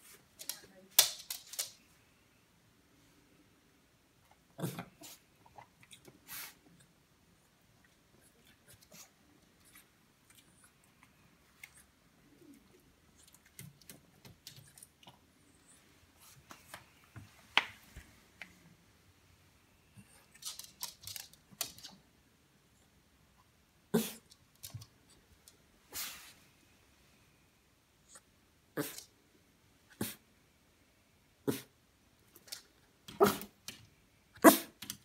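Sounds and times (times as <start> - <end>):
dog claws clicking on wooden floor: 0.4 - 1.8, 20.3 - 22.0.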